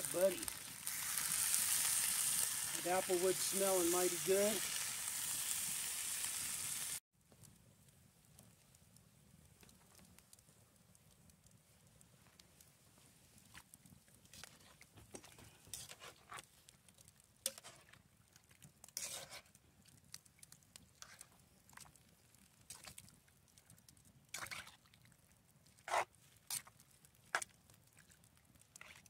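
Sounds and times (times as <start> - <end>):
spoon stirring stew: 17.5 - 18.0, 18.6 - 19.6.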